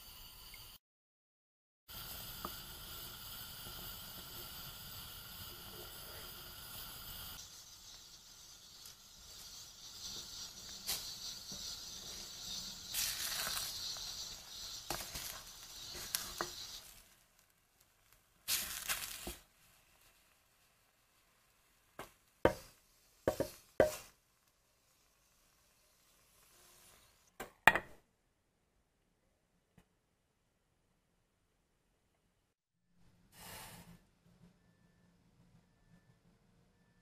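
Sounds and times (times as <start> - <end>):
egg hissing in hot pot: 1.9 - 27.4
wooden spatula scraping pot: 9.4 - 17.0.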